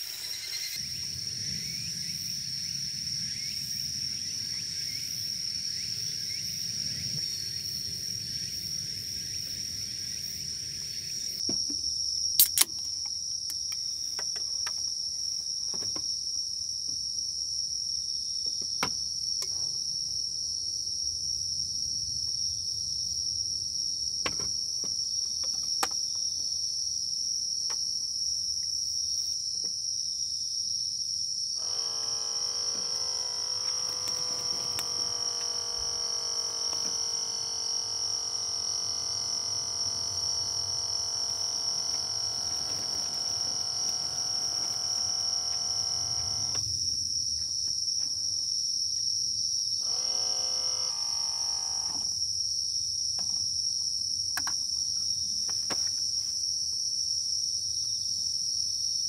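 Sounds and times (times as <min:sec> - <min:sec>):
crickets chirping: 0:00.0 - 0:59.0
sharp clicks: 0:31.6 - 0:46.7.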